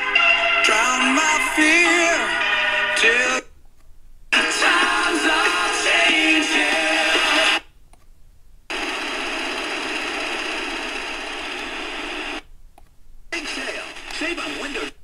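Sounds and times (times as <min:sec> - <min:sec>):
radio station audio: 0:00.6 - 0:03.5, 0:04.4 - 0:07.6, 0:08.7 - 0:12.4, 0:13.3 - 0:15.0
radio static hiss: 0:06.7 - 0:07.6, 0:08.7 - 0:12.5, 0:13.3 - 0:15.0.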